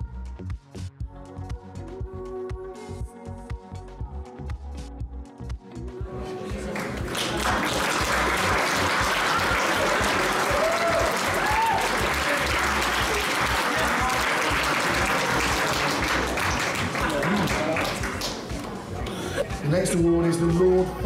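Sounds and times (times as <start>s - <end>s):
background music: 0.0s - 21.0s
audience applauding: 6.4s - 19.1s.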